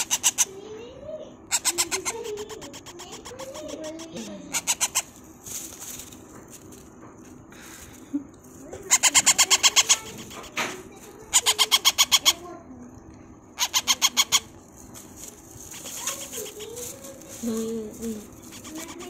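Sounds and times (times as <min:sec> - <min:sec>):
parrot chick chirping: 0:00.0 - 0:00.6, 0:01.5 - 0:05.2, 0:08.8 - 0:12.5, 0:13.6 - 0:14.6.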